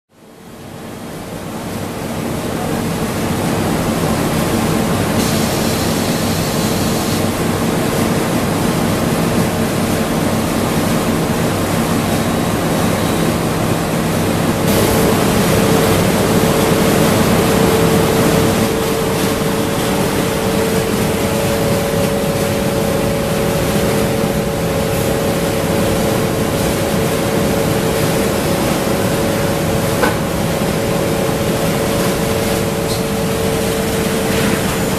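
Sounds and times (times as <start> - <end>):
industrial machine hiss and hum: 0.2 - 34.9.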